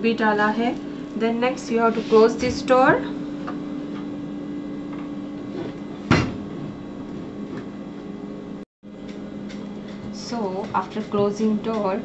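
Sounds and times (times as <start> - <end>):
dishwasher door thud: 6.1 - 6.4.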